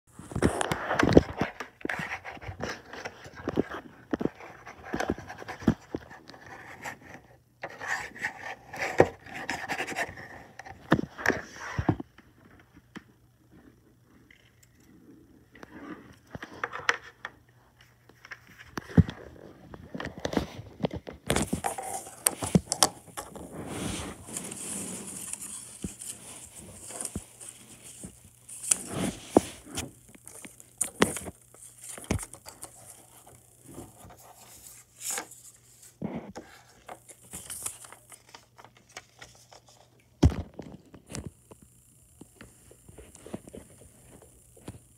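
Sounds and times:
objects being handled: 0:14.2 - 0:41.4
steady hiss: 0:21.4 - 0:40.2.

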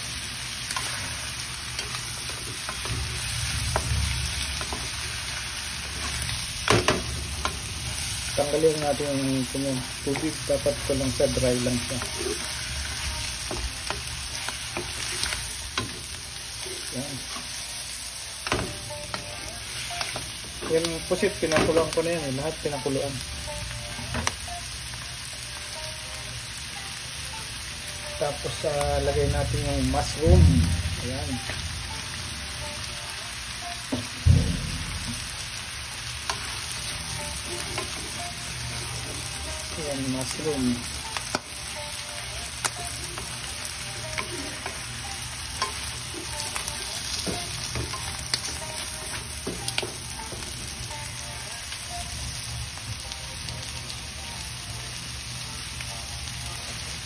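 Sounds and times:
seafood sizzling in wok: 0:00.0 - 0:57.0
loud low thump: 0:30.3 - 0:31.1, 0:34.2 - 0:35.3.

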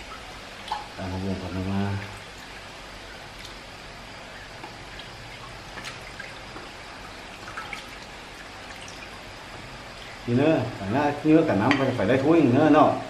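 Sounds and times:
brine dripping and trickling: 0:00.0 - 0:12.4
light clicks and splashes: 0:00.6 - 0:01.0, 0:03.3 - 0:03.6, 0:04.6 - 0:09.2.

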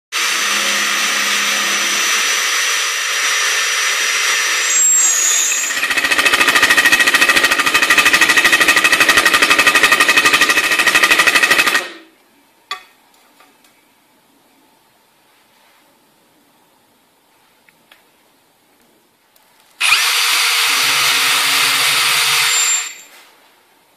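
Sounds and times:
impact drill hammering: 0:00.2 - 0:04.7, 0:05.4 - 0:12.0, 0:19.8 - 0:23.0
electric drill whining: 0:00.2 - 0:12.0, 0:19.8 - 0:23.1.

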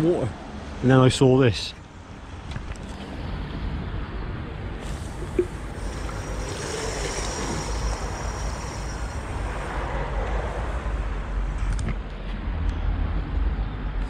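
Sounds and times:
road traffic noise: 0:00.0 - 0:14.0
tap water running into plastic bottle: 0:05.2 - 0:09.0.

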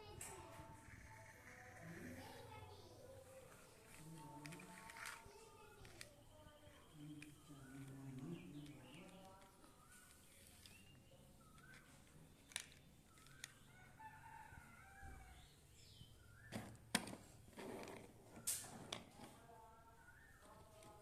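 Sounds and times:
faint drawn-out calls: 0:00.6 - 0:02.8
plastic toys clicking and knocking: 0:03.8 - 0:13.7, 0:16.5 - 0:19.2.

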